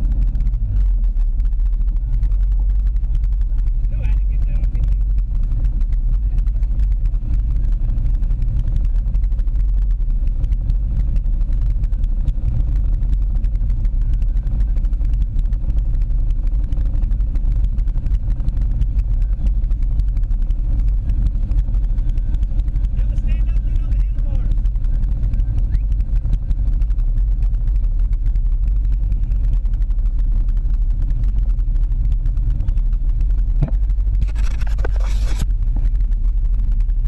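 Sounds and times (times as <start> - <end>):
atv engine idling: 0.0 - 35.0.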